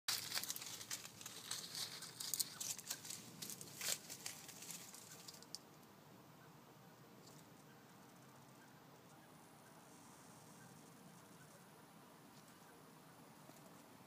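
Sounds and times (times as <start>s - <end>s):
hedgehog rustling in dry leaves: 0.1s - 5.5s.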